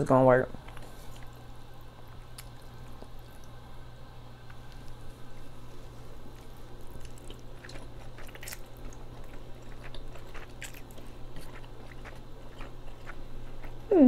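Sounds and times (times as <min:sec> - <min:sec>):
low steady hum: 0:00.0 - 0:14.0
chewing and slurping noodles: 0:04.8 - 0:13.9.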